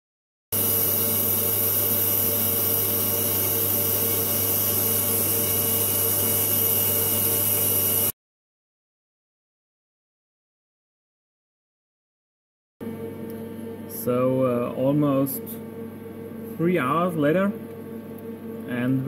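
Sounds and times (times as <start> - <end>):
machine hum and hiss: 0.6 - 8.1, 12.8 - 19.0.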